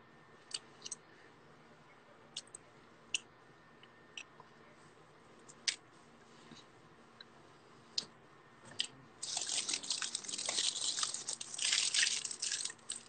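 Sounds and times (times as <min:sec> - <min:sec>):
wet mouth clicks and smacks: 0:08.8 - 0:13.0.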